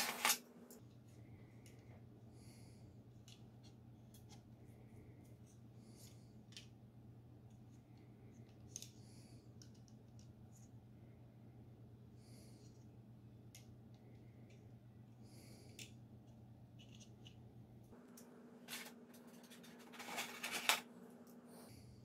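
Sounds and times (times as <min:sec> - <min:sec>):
low steady hum: 0:00.0 - 0:22.0.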